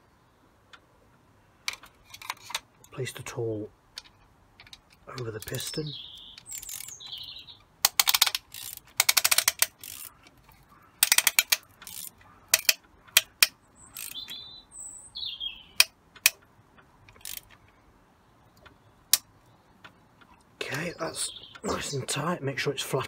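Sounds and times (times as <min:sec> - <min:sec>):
hand ratchet clicking: 0:06.3 - 0:07.2, 0:07.8 - 0:14.4, 0:15.8 - 0:16.4, 0:17.0 - 0:17.6.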